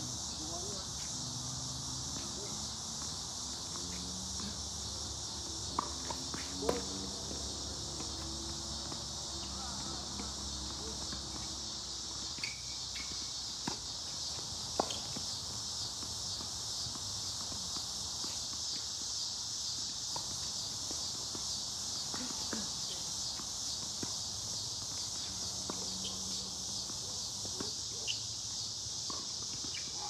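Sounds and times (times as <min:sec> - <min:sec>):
insects buzzing: 0:00.0 - 0:30.0
tennis ball struck by racket: 0:01.7 - 0:11.5.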